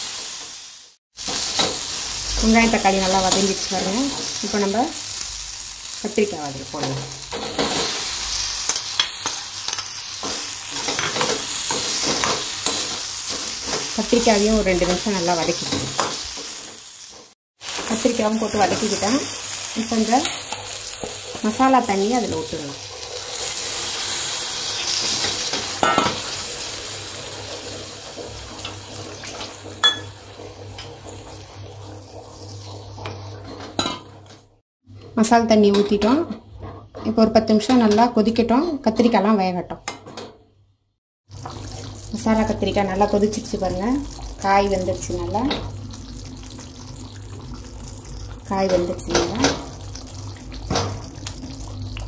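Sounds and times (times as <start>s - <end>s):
vegetables sizzling in hot oil: 0.0s - 33.4s, 41.3s - 52.0s
utensils clinking against pan: 28.6s - 30.2s.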